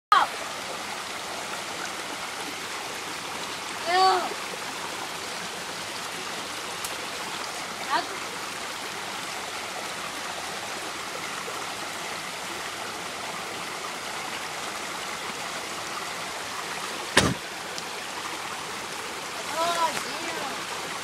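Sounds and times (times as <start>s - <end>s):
water rushing over rocks: 0.1s - 21.0s
loud knock: 17.2s - 17.4s.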